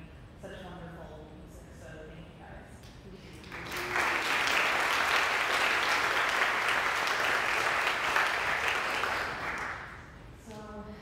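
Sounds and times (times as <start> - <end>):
congregation clapping: 3.4 - 10.2.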